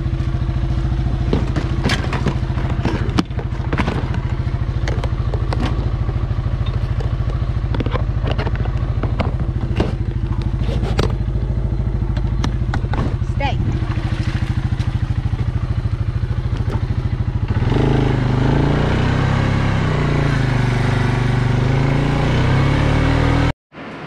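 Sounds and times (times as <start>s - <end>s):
atv engine running: 0.0s - 23.5s
knocks and clatter of load: 1.1s - 11.3s, 12.1s - 13.4s.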